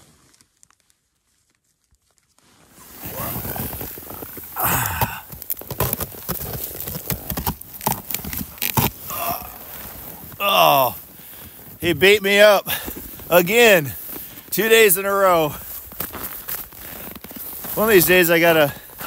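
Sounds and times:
snow crunching and scraping: 0:00.0 - 0:19.0
jacket fabric rustling: 0:02.4 - 0:05.1.

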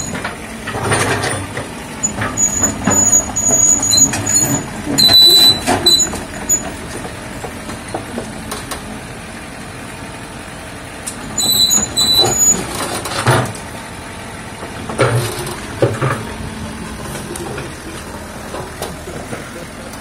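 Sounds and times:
excavator diesel engine running: 0:00.0 - 0:20.0
high-pitched squeaks: 0:02.1 - 0:06.6.

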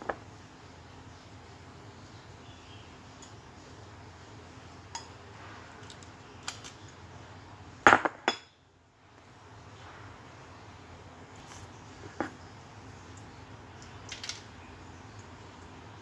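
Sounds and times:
kitchenware clinking: 0:04.9 - 0:05.2, 0:07.9 - 0:08.6
dishes clattering: 0:07.9 - 0:08.6.

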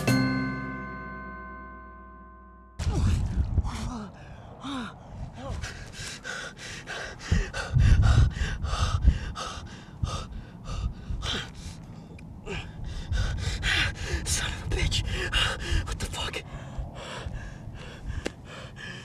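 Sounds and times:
low rumble: 0:02.8 - 0:06.0
man gasping for breath: 0:04.2 - 0:11.7.

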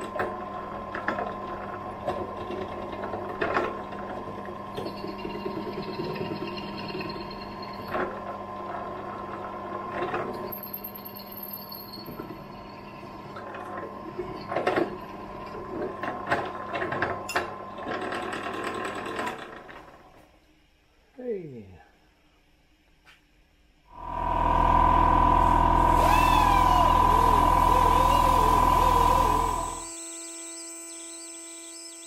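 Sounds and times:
pillar drill cutting metal: 0:24.0 - 0:32.0.

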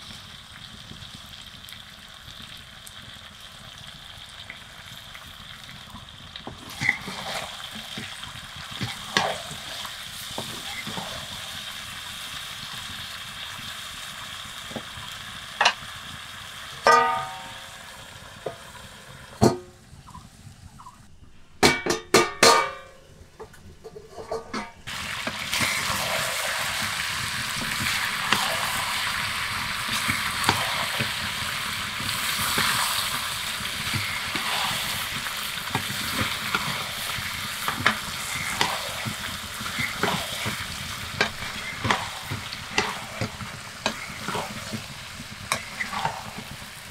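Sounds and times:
curry sizzling in pan: 0:00.0 - 0:21.1, 0:24.5 - 0:46.9
wooden spatula scraping pan: 0:06.7 - 0:08.1, 0:08.8 - 0:11.4, 0:33.8 - 0:46.9
spatula knocking metal pan: 0:16.8 - 0:17.7, 0:21.6 - 0:23.0.

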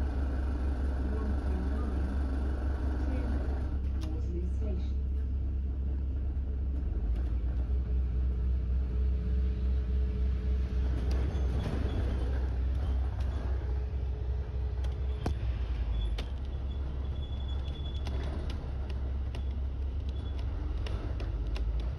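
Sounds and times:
bus engine and road rumble: 0:00.0 - 0:21.9
sharp clicks: 0:17.5 - 0:21.9.

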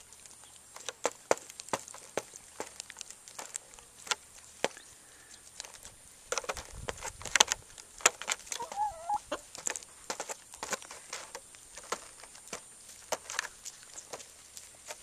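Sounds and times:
hen clucking: 0:08.5 - 0:09.5.

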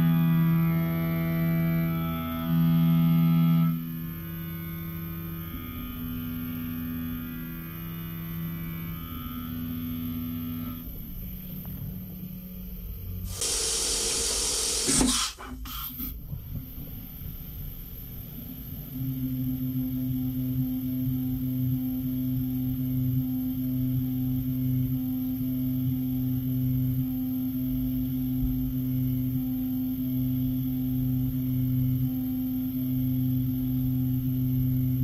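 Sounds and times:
milling machine humming: 0:13.3 - 0:15.4
coolant spray hissing: 0:13.3 - 0:15.8.

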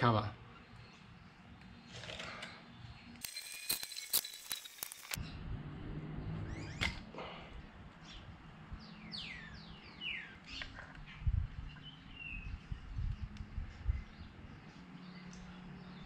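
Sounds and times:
birds chirping: 0:06.2 - 0:16.0.

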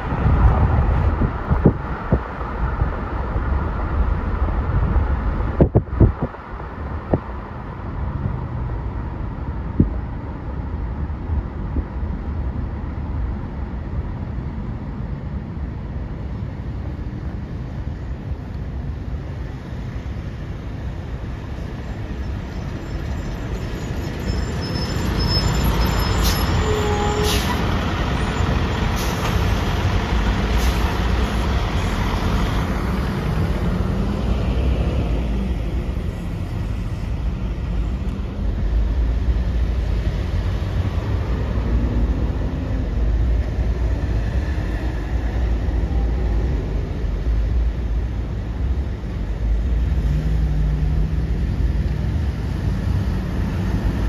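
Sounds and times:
heavy trucks passing: 0:00.0 - 0:54.0.

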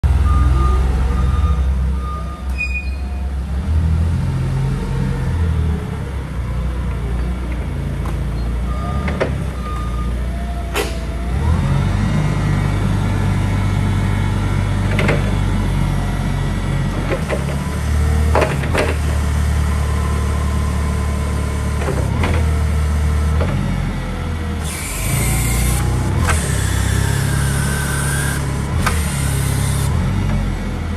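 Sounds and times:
forklift engine running: 0:00.0 - 0:30.9
pitch-sliding squeals: 0:02.2 - 0:03.3.

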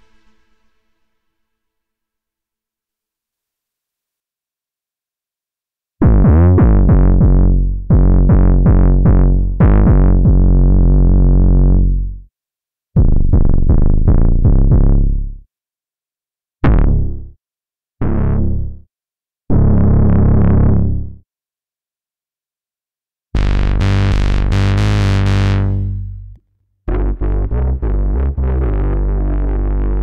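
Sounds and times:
synthesizer bass notes: 0:06.0 - 0:12.2, 0:13.0 - 0:15.4, 0:16.6 - 0:17.4, 0:18.0 - 0:18.9, 0:19.5 - 0:21.2, 0:23.4 - 0:30.0.

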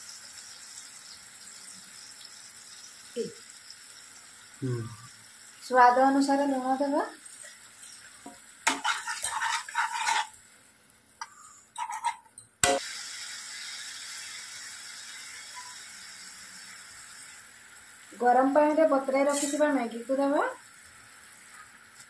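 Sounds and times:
masala sizzling: 0:00.0 - 0:22.0
spatula scraping a pan: 0:08.6 - 0:10.4, 0:11.2 - 0:12.8, 0:19.3 - 0:19.7.

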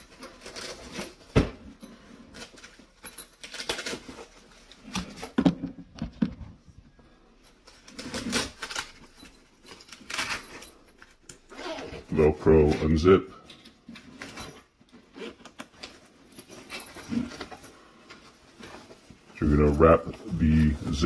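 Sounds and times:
fabric rustling: 0:06.6 - 0:21.0.

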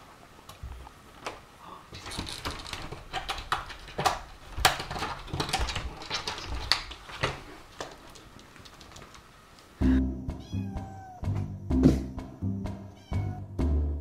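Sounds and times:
pet door flap rattling: 0:02.0 - 0:07.4.

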